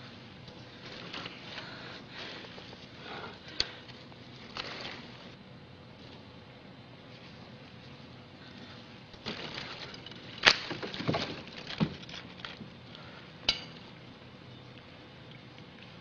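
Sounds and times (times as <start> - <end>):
rustling: 0.0 - 5.4, 7.1 - 13.2
dry branches crackling and snapping: 0.4 - 5.4, 8.6 - 14.0.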